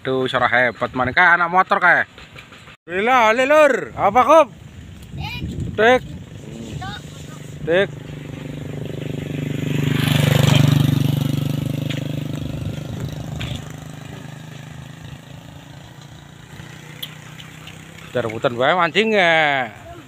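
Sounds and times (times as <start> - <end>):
motorcycle engine passing by: 6.1 - 20.0.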